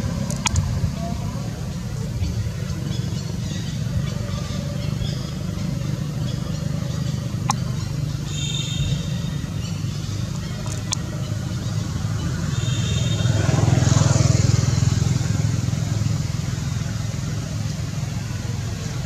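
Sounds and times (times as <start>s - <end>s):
low engine hum: 0.0s - 19.0s
sharp clicks: 0.2s - 0.7s, 10.3s - 11.1s.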